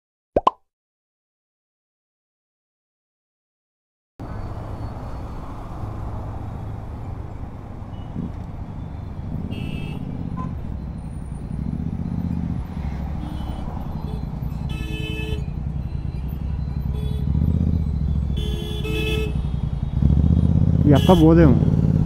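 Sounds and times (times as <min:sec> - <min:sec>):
motorcycle engine and road rumble: 0:04.2 - 0:22.0
vehicle horn beeps: 0:09.4 - 0:11.4, 0:13.1 - 0:20.2, 0:20.8 - 0:22.0.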